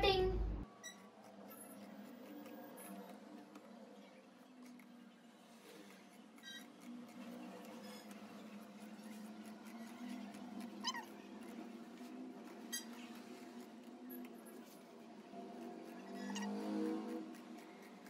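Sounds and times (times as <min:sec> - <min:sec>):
steady low hum: 0:00.0 - 0:00.7
shears cutting fabric: 0:00.8 - 0:03.8, 0:04.4 - 0:18.0.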